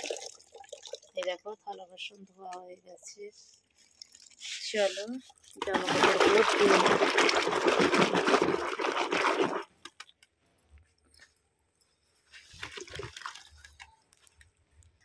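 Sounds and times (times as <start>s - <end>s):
soapy water sloshing in a washtub: 3.6s - 9.8s, 12.4s - 13.9s
wet cloth squelching: 3.6s - 9.8s.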